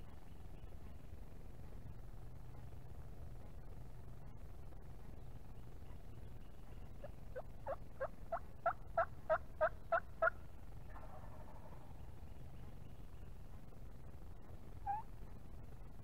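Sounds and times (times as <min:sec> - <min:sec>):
turkey yelps: 0:07.0 - 0:11.8, 0:14.8 - 0:15.1.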